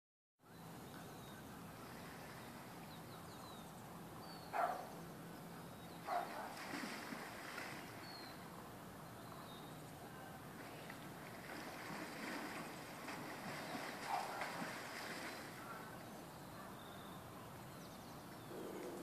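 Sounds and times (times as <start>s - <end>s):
small birds chirping: 0.5s - 6.6s, 7.7s - 11.1s, 12.4s - 19.0s.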